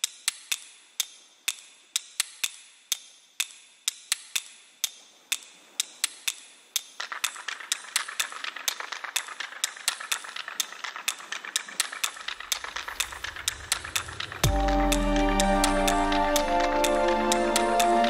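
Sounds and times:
sharp hard clicks: 6.0s - 18.0s.

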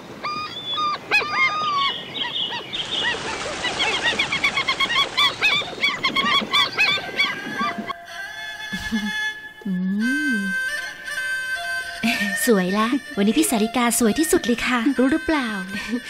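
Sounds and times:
flock of birds calling: 0.2s - 7.9s.

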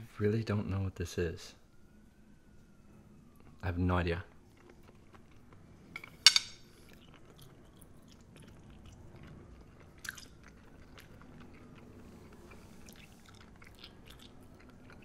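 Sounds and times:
person chewing food: 4.3s - 15.0s.

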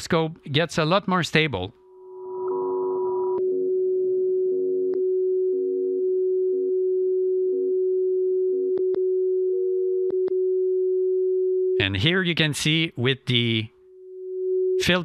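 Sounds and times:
faint tones: 1.8s - 11.9s.

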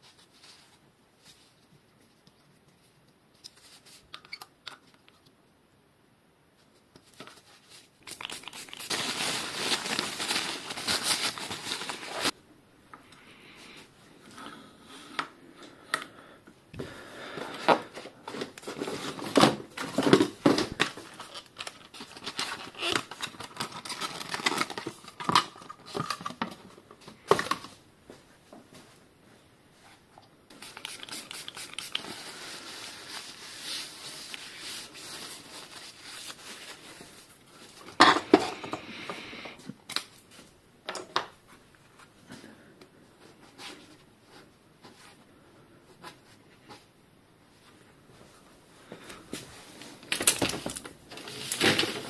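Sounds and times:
steady hiss: 29.6s - 37.8s
rustling and clicking of parts: 48.9s - 52.0s.

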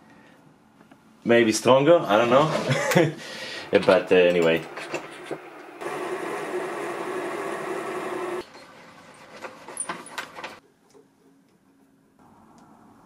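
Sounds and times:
lathe drill cutting metal: 5.8s - 8.4s.

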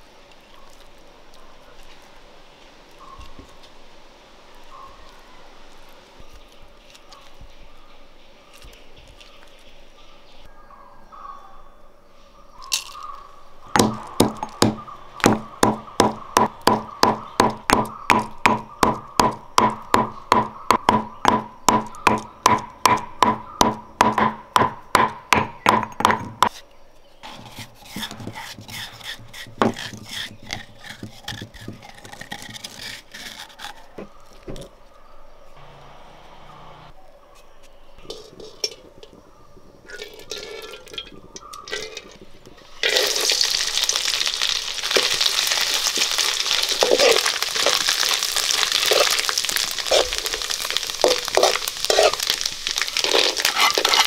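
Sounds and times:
pestle pounding in stone mortar: 13.7s - 26.5s, 27.3s - 32.7s
scraping in mortar: 26.4s - 35.0s, 37.4s - 54.0s.

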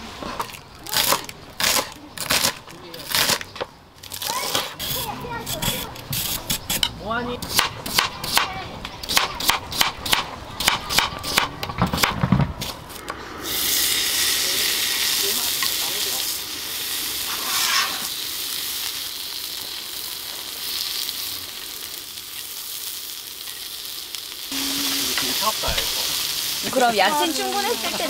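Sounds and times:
meat sizzling on griddle: 13.4s - 28.0s.

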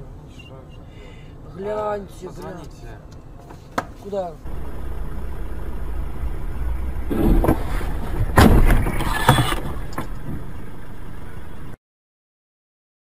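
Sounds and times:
car crash impact thud: 4.5s - 10.6s
car rumble in motion: 4.5s - 11.8s
smaller knocks: 7.0s - 10.5s.

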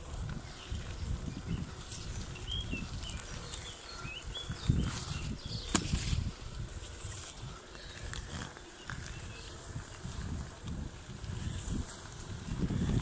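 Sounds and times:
wind rumbling on microphone: 0.0s - 13.0s
bird chirps: 1.5s - 5.8s.

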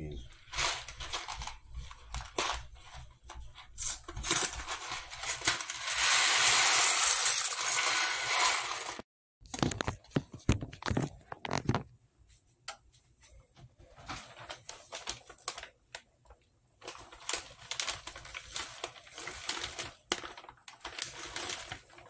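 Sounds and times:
pasta pouring into water: 3.8s - 9.0s, 16.8s - 22.0s.

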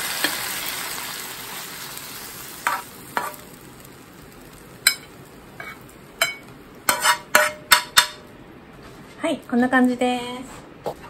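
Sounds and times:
stir-fry sizzling: 0.0s - 8.4s
metal spoon scraping a pan: 2.6s - 3.5s, 4.8s - 8.2s.

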